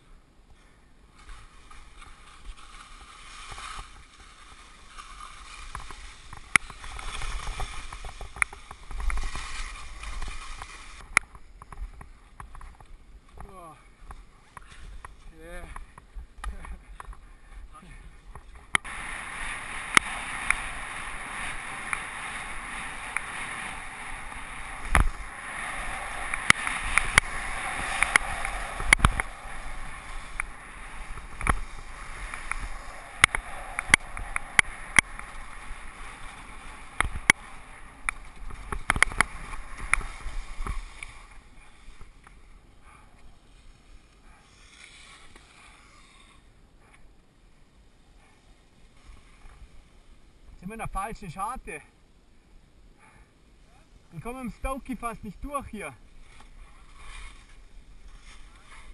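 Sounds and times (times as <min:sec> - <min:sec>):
skis hissing over snow: 0:01.2 - 0:11.1, 0:18.8 - 0:42.2, 0:42.8 - 0:46.5, 0:54.2 - 0:58.9.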